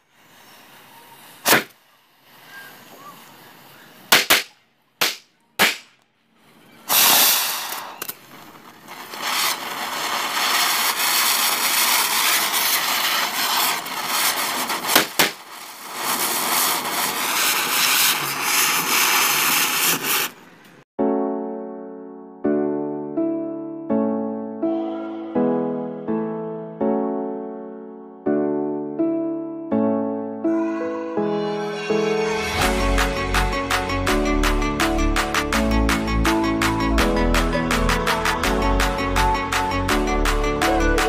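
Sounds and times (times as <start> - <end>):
firework fountains hissing: 0.0 - 4.2, 6.8 - 20.6
firecrackers banging: 0.3 - 3.2, 6.9 - 20.4.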